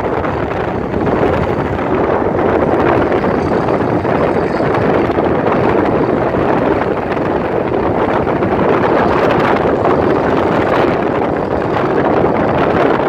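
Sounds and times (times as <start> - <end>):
motorcycle engines: 0.0 - 13.0
road and wind noise in car: 0.0 - 13.0.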